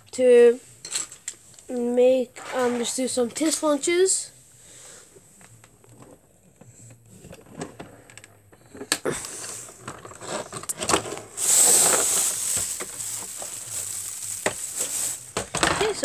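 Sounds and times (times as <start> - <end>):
spinning top rattling on wooden floor: 9.9 - 16.0.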